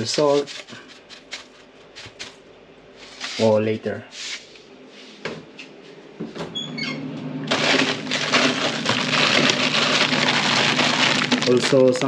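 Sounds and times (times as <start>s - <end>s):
plastic bags crinkling: 7.5s - 12.0s.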